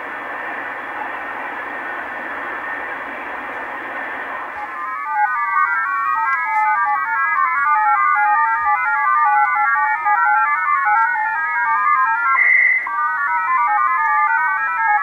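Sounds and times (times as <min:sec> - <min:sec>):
stepping radio beeps: 0:11.8 - 0:12.9.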